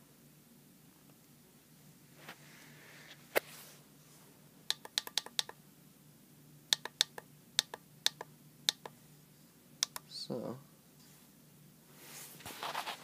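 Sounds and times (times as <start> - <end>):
oscilloscope buttons clicking: 4.7 - 5.6, 6.7 - 9.0, 9.8 - 10.1.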